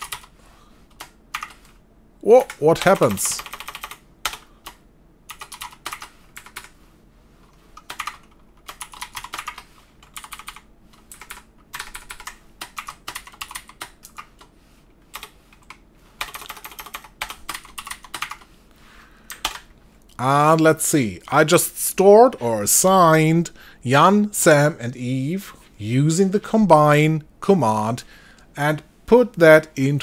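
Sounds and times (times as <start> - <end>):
typing on computer keyboard: 0.0 - 0.3, 0.9 - 6.7, 7.8 - 14.5, 15.1 - 18.5, 19.3 - 19.7.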